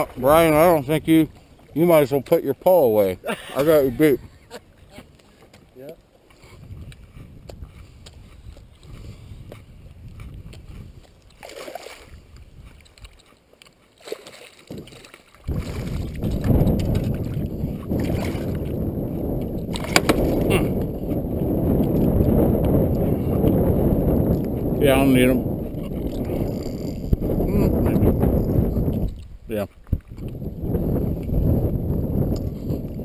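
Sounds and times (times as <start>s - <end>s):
wind buffeting microphone: 0.0s - 5.2s, 6.4s - 11.4s, 12.0s - 13.2s, 14.7s - 33.0s
dense low rumble: 15.5s - 29.1s.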